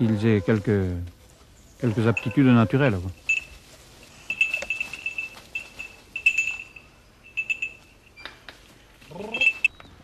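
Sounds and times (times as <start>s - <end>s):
small collar bell tinkling: 3.1s - 8.2s, 9.2s - 9.7s.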